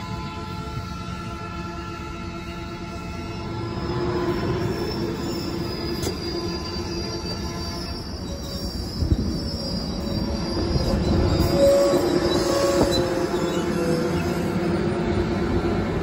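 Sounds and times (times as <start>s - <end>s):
train wheels rumbling on rails: 0.0s - 16.0s
high-pitched wheel squeal: 3.3s - 15.6s.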